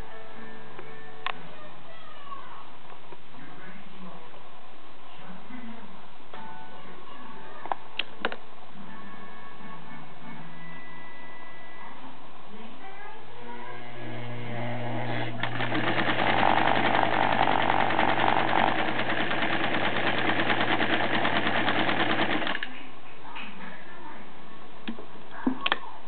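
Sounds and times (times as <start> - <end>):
sewing machine stitching: 14.0 - 22.7.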